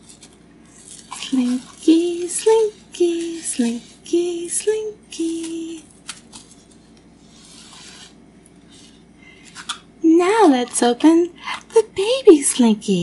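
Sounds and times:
woman humming: 1.2s - 5.9s.

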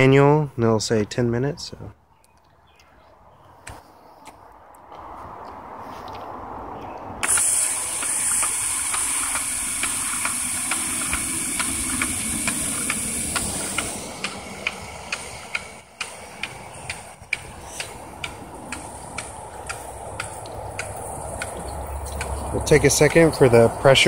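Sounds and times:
fertilizer injector ticking: 7.2s - 23.4s
water hissing through irrigation line: 7.2s - 24.0s.

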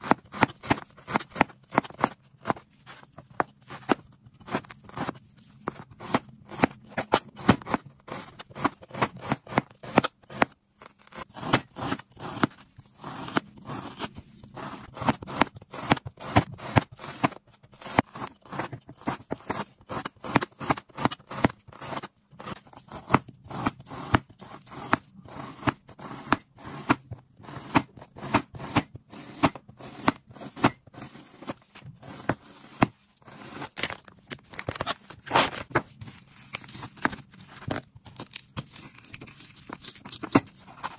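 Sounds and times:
cleaver chopping on cutting board: 24.8s - 30.8s.

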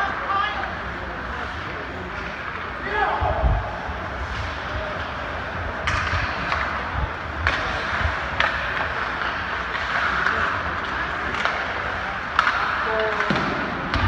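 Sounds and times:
hockey sticks and puck knocking: 5.8s - 14.0s.

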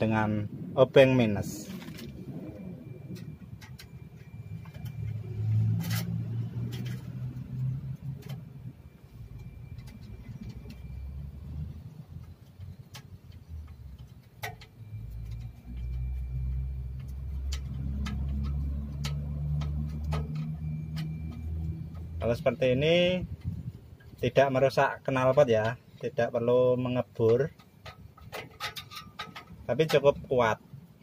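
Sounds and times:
low engine rumble: 0.0s - 31.0s
screwdriver clicking and scraping metal: 27.2s - 30.1s.

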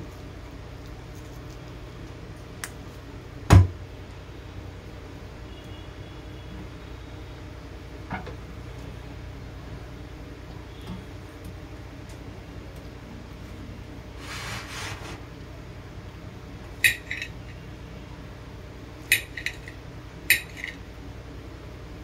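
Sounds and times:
knife scraping: 14.2s - 15.2s.

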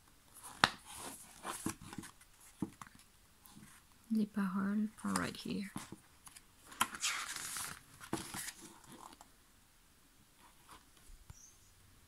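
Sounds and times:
paper pages turning: 0.4s - 3.8s, 5.0s - 9.3s.

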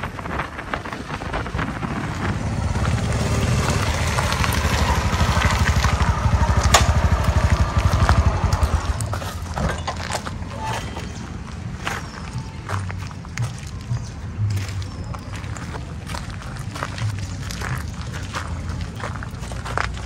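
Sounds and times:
motorcycle engine idling: 2.2s - 10.5s.

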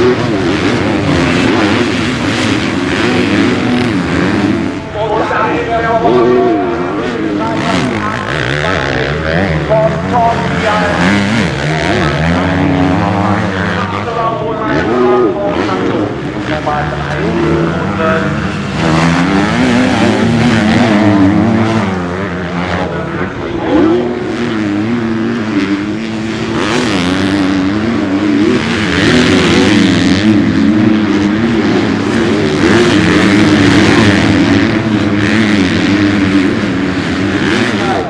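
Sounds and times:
motocross engines revving: 0.0s - 38.0s.

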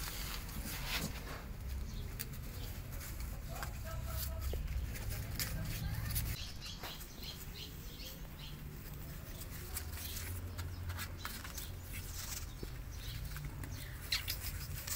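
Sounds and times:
claws scratching on cardboard: 0.0s - 14.9s.

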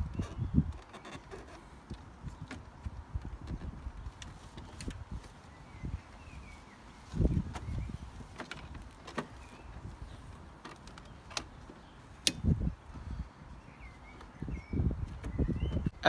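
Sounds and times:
sharp plastic clicks: 10.6s - 12.6s.

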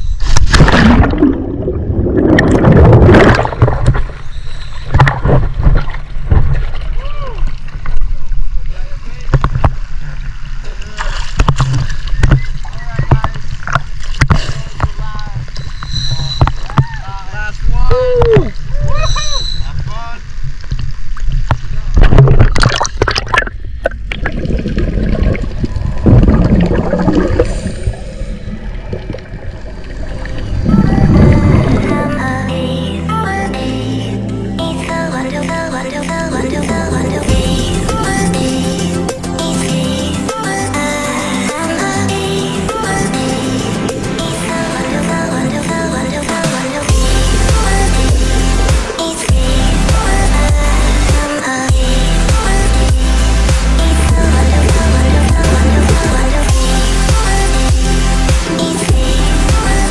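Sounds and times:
choppy water splashing: 0.3s - 32.3s
underwater bubbling: 0.5s - 16.9s, 18.3s - 32.5s
wind buffeting microphone: 30.2s - 32.0s.

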